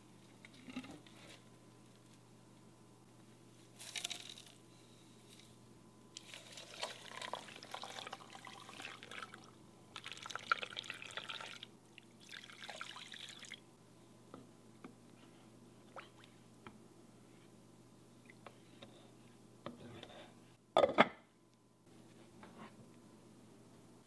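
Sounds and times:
liquid pouring into pot: 0:06.2 - 0:13.6.

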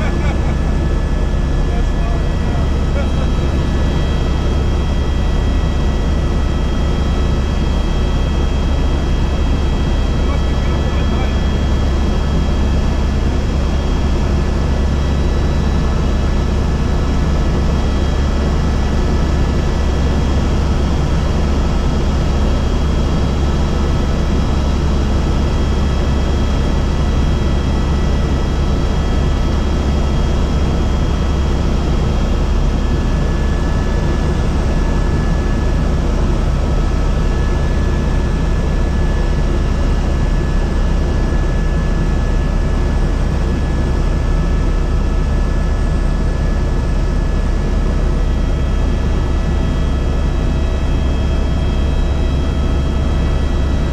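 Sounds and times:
helicopter engine and rotor drone: 0:00.0 - 0:53.9.

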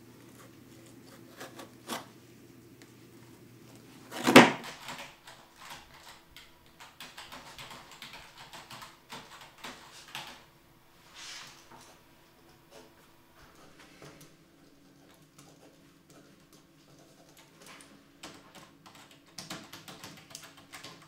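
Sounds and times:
faint low hum: 0:00.0 - 0:21.0
computer keyboard typing: 0:04.3 - 0:10.5, 0:14.1 - 0:21.0.

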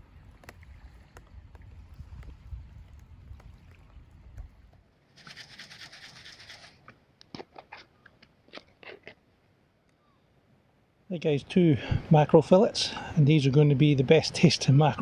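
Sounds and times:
wind rumbling on microphone: 0:00.0 - 0:05.5.

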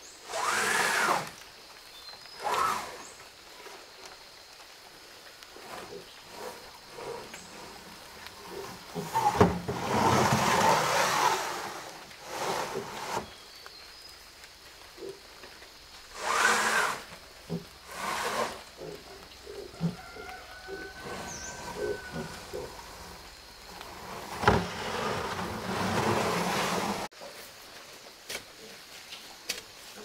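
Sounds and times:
roofing sheets scraping: 0:00.2 - 0:01.4, 0:02.4 - 0:03.8, 0:05.4 - 0:13.5, 0:16.1 - 0:27.1.

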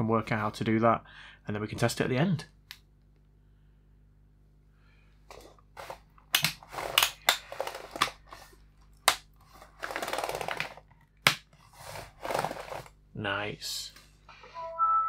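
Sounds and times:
plastic scraping on plastic: 0:05.3 - 0:08.6, 0:09.3 - 0:13.0.

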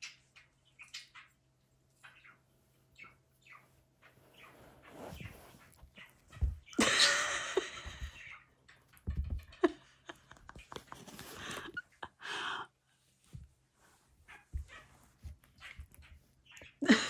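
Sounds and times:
fabric rustling: 0:04.1 - 0:06.8.

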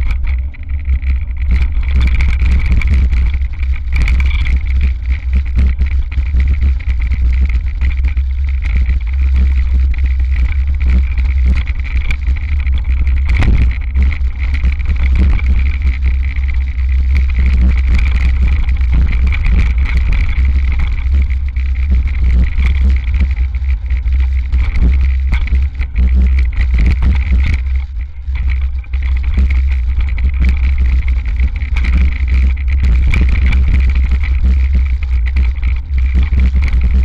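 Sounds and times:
bike rattles and knocks: 0:00.0 - 0:09.2
bike wind and frame rumble: 0:00.0 - 0:37.0
steady high hum: 0:00.0 - 0:37.0.

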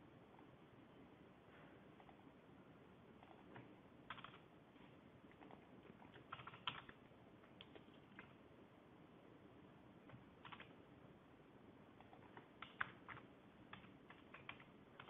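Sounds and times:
computer keyboard typing: 0:03.2 - 0:04.5, 0:05.3 - 0:08.4, 0:10.1 - 0:10.8, 0:12.0 - 0:15.0.

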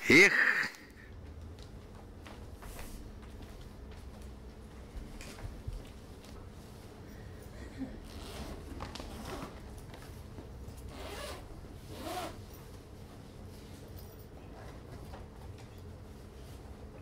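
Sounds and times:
zipper of fabric bag opening: 0:08.0 - 0:09.6, 0:10.9 - 0:12.4.

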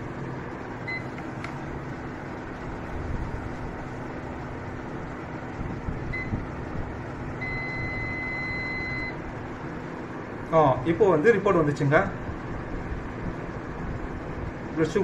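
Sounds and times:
machine hum: 0:00.0 - 0:15.0
electronic beeps: 0:07.4 - 0:09.2.

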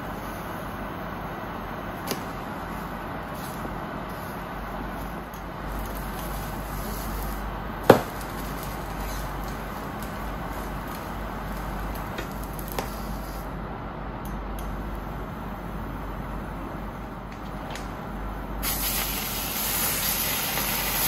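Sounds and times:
bread sizzling in a pan: 0:05.6 - 0:13.4, 0:18.6 - 0:21.0
sharp knock on a pan: 0:07.9 - 0:08.2.

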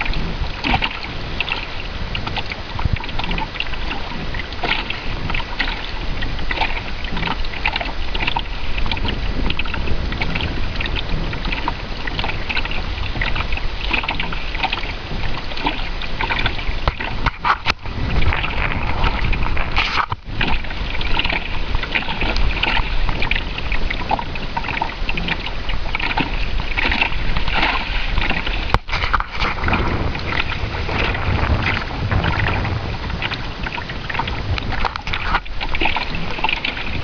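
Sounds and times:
water splashing along boat hull: 0:00.0 - 0:37.0
wind buffeting microphone: 0:00.0 - 0:37.0.

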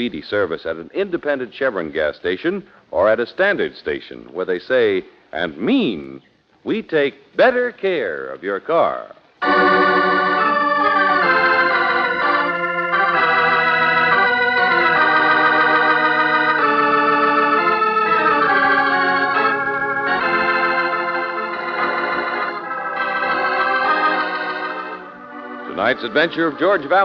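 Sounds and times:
organ playing sustained chords: 0:09.4 - 0:27.0.

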